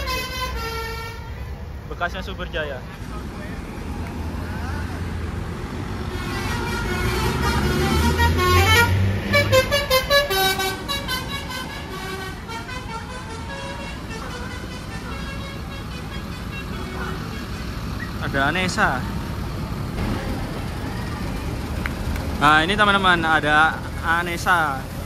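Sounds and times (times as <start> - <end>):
bus horn playing a melody: 0.0 - 1.5, 6.1 - 17.8
bus engine rumble: 0.0 - 25.0.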